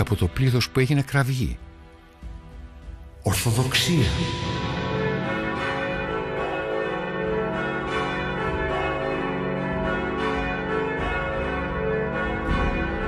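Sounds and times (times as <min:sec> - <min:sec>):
church bells pealing: 0:03.3 - 0:13.0.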